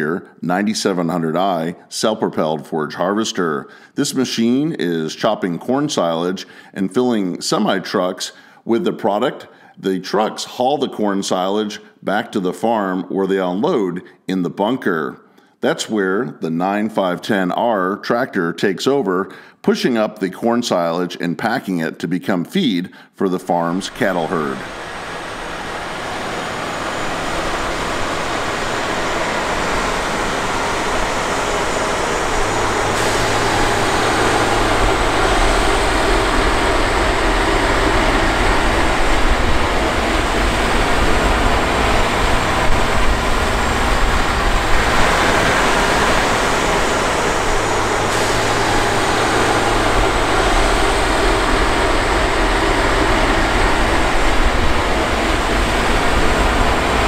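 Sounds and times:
tractor diesel engine under load: 23.7s - 57.0s
deep low hum: 23.9s - 57.0s.

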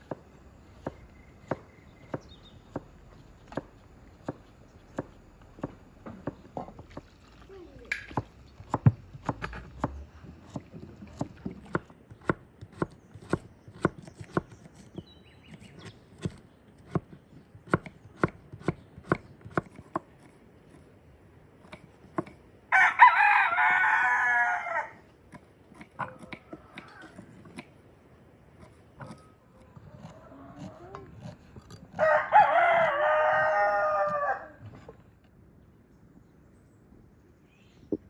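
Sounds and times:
knives chopping on wooden boards: 0.0s - 7.1s, 7.9s - 20.3s
rooster crowing: 22.7s - 25.0s, 31.9s - 34.7s.

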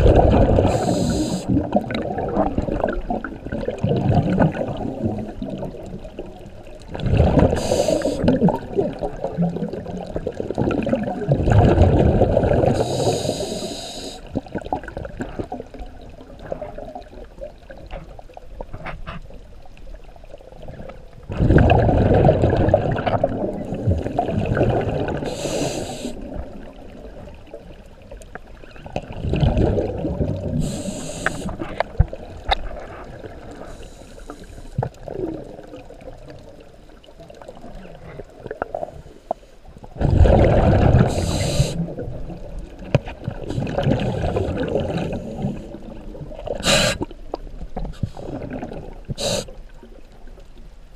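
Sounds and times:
exhaled bubbles rushing: 0.0s - 13.2s, 14.2s - 18.5s, 19.7s - 33.8s, 34.8s - 39.0s, 39.9s - 50.2s
regulator inhalation hiss: 0.6s - 1.5s, 7.6s - 8.3s, 12.8s - 14.3s, 25.2s - 26.2s, 30.6s - 31.6s, 33.7s - 34.8s, 41.1s - 41.9s, 46.6s - 47.1s, 49.2s - 49.6s.

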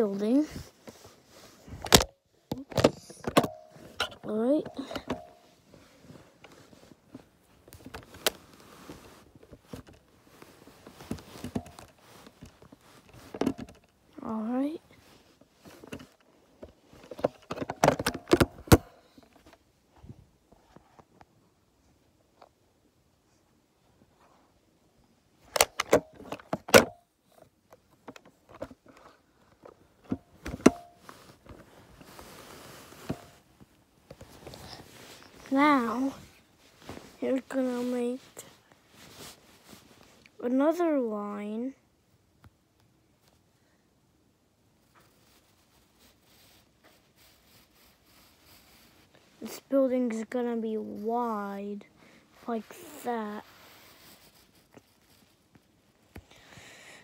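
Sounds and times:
handling clicks and knocks: 1.8s - 5.5s, 15.7s - 19.5s, 27.7s - 31.6s.

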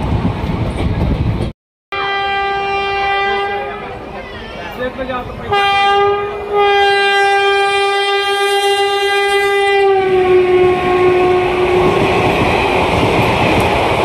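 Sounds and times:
train rolling on rails: 0.0s - 14.0s
locomotive horn blast: 1.9s - 4.1s, 5.5s - 12.1s.

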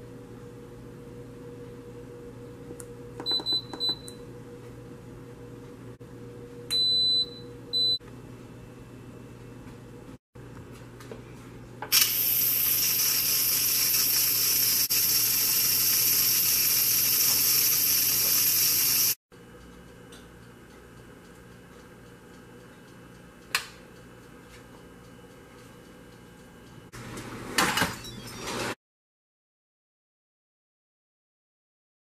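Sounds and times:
steam hissing from valve: 11.9s - 19.2s.

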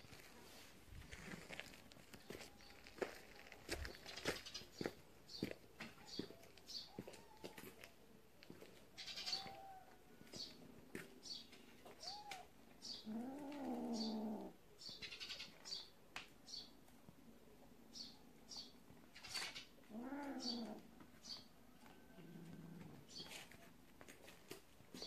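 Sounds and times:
cat yowling: 19.9s - 20.8s.

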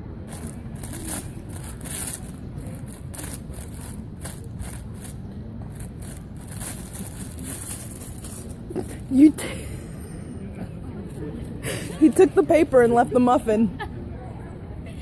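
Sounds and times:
paper wrapper crinkling: 0.3s - 8.6s.

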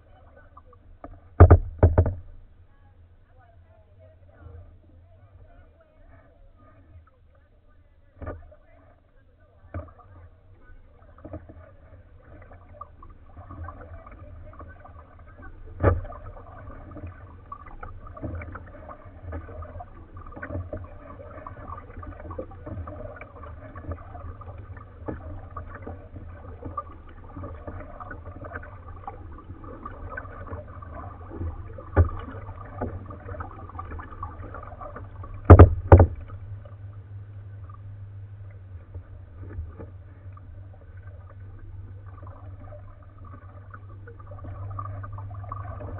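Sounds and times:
paddle splashes and clicks: 0.0s - 2.5s, 5.4s - 45.9s
knocks on kayak hull: 1.4s - 2.4s, 35.3s - 36.4s.

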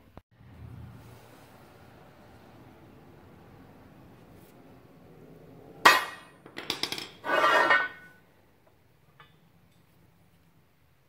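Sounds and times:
steel scraping: 7.1s - 8.2s.

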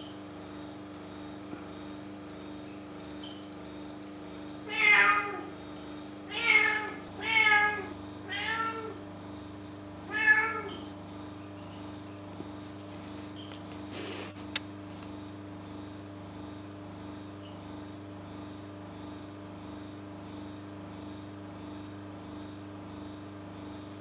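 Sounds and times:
cat meowing: 4.7s - 5.5s, 6.3s - 9.0s, 10.1s - 10.9s.

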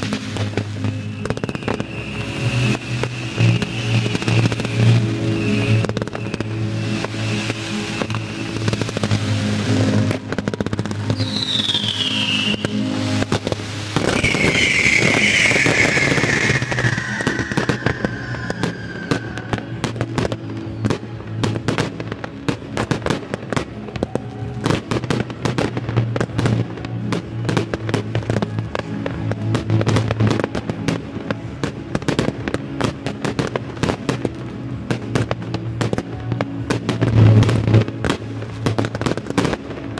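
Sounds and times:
firework whistles falling in pitch: 0.0s - 10.2s, 11.0s - 21.5s
music: 0.0s - 39.9s
rapid firework crackling: 0.0s - 39.9s.

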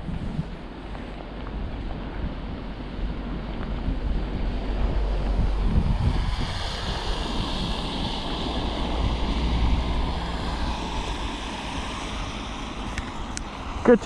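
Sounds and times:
wind buffeting microphone: 0.0s - 14.0s
heavy rain: 2.9s - 14.0s.

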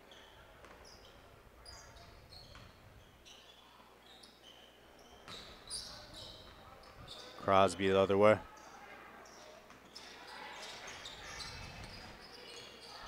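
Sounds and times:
sneakers squeaking on court: 0.0s - 7.5s, 9.2s - 13.0s.

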